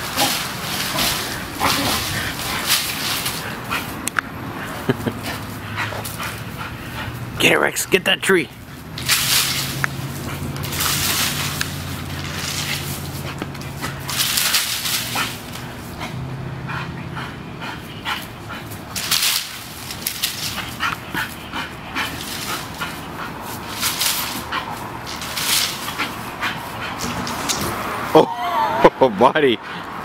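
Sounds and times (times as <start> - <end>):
dry palm fronds rustling: 0.0 - 4.0, 8.5 - 16.0, 18.6 - 27.9.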